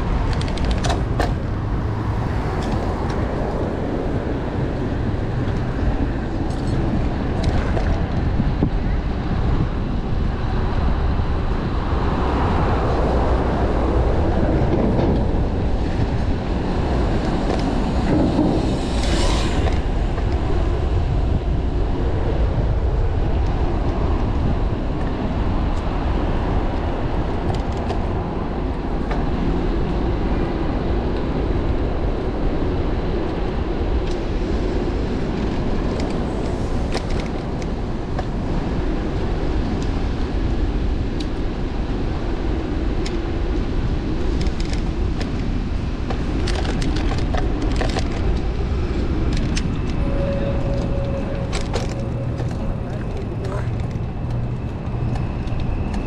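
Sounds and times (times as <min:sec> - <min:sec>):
bicycle road noise: 0:00.0 - 0:56.0
city traffic: 0:00.0 - 0:56.0
wind rumble on microphone: 0:00.0 - 0:56.0.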